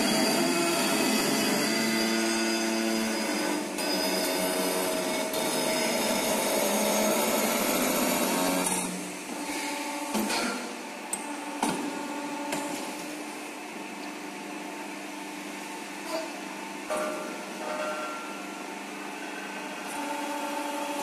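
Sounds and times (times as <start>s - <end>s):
tube bending machine whine: 0.0s - 21.0s.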